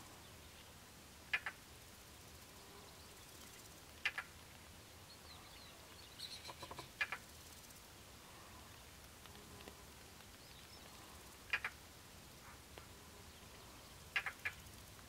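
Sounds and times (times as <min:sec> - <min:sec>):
faint high bird chirps: 0:05.1 - 0:06.9
harsh bird calls: 0:05.2 - 0:07.2, 0:13.5 - 0:14.7.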